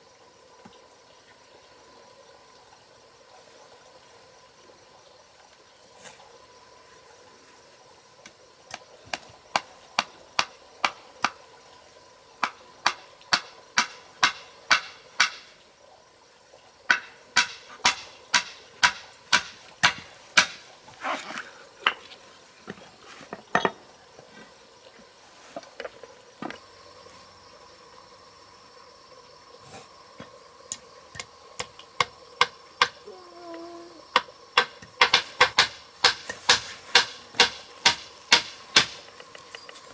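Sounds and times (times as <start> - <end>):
hammer striking nails into wood: 12.4 - 15.4, 16.9 - 20.6, 34.6 - 39.1.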